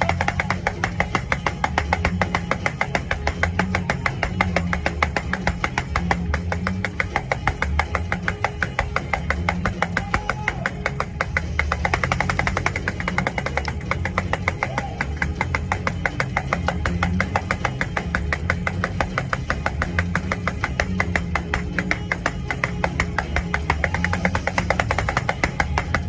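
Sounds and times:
fast church music with bass: 0.0 - 26.0.

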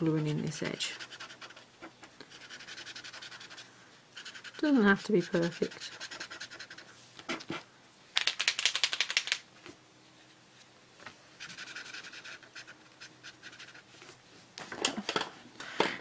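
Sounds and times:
marker tip scratching paper: 0.7 - 3.6, 4.2 - 6.9, 11.4 - 13.8
marker ball rattling: 8.2 - 9.4.

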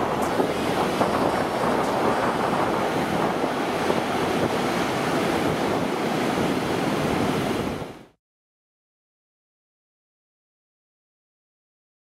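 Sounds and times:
wind buffeting microphone: 0.0 - 8.1
ocean surf breaking: 0.0 - 8.2.

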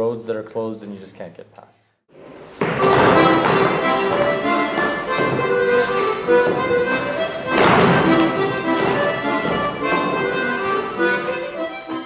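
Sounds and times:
shoes thumping on floor: 2.2 - 11.4
accordion folk dance tune: 2.3 - 12.0.

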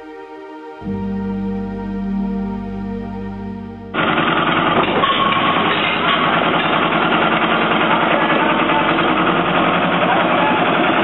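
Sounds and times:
engine running with rattle: 3.9 - 11.0.

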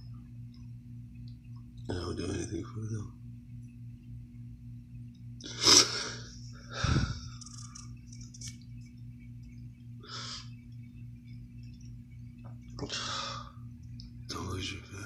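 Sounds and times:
steady low hum: 0.0 - 15.0
man breathing close to microphone: 6.0 - 7.5.

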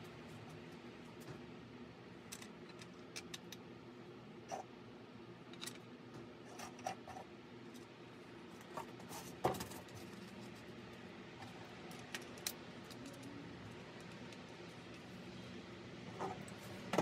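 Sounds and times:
faint steady hum: 0.0 - 17.0
metal hardware clicking and clinking: 11.8 - 15.0.

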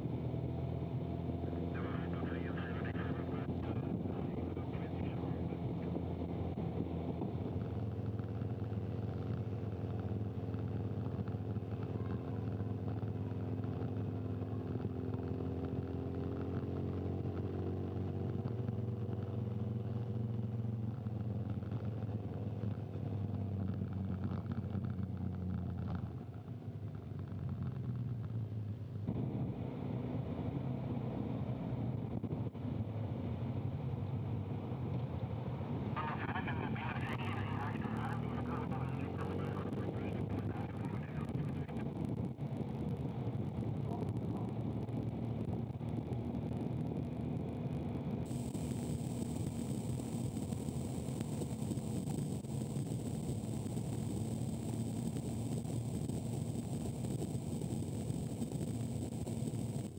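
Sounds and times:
wind and road noise: 0.0 - 59.9.

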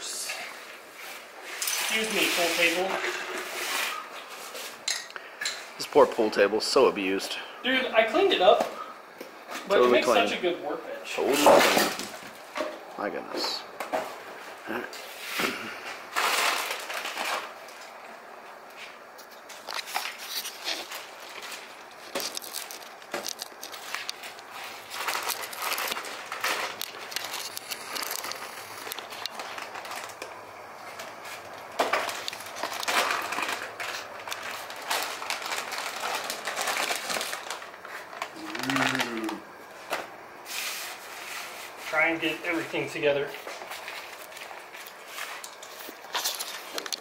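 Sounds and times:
plastic packaging crinkling: 15.9 - 40.2, 40.8 - 47.0.

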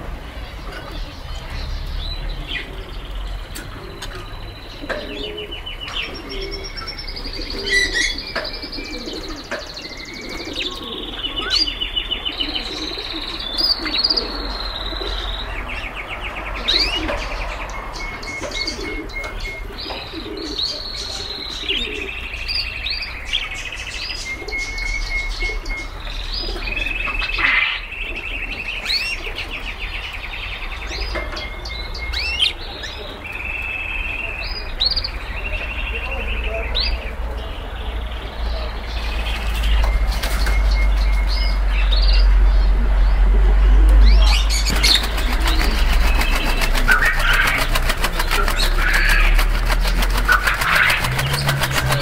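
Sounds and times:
caged birds singing and chirping: 0.0 - 52.0.

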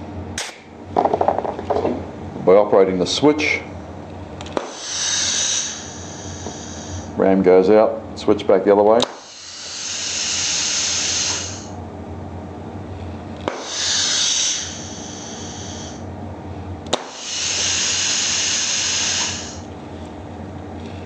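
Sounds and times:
compressed air hissing: 4.6 - 7.2, 9.0 - 11.8, 13.5 - 16.1, 16.9 - 19.7
valve switch click: 9.0 - 9.2.

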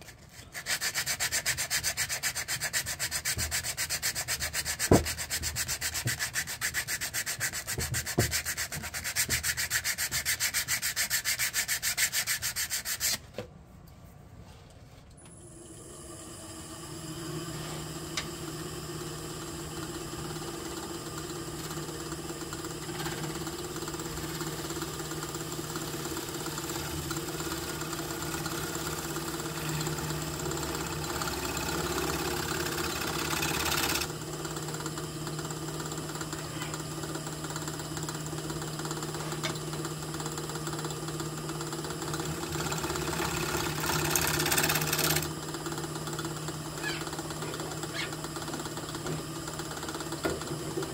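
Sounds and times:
lathe motor humming: 16.1 - 50.9.

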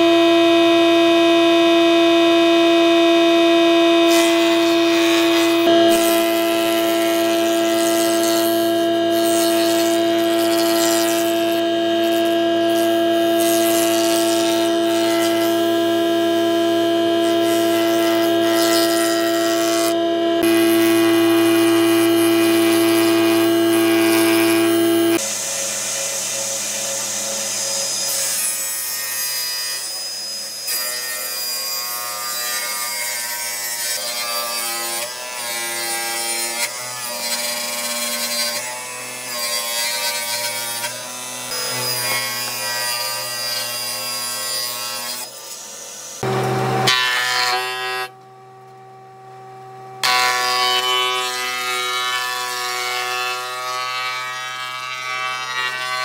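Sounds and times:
woodworking tools working wood: 0.0 - 48.2, 50.0 - 56.0.

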